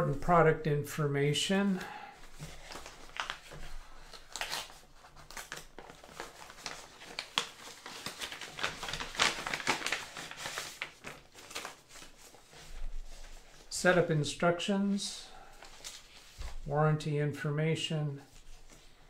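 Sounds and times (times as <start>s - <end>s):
paper rustling and crinkling: 1.7s - 14.0s, 15.1s - 16.7s, 18.2s - 19.0s.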